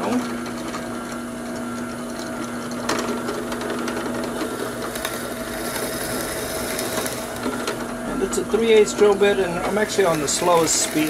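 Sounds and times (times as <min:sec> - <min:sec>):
drill press motor hum: 0:00.0 - 0:11.0
drill cutting hiss: 0:09.8 - 0:11.0.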